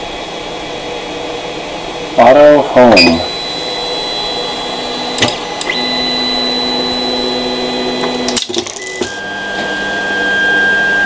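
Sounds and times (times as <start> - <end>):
stepper motors whining: 2.2 - 11.0
sharp clicks: 5.1 - 5.8.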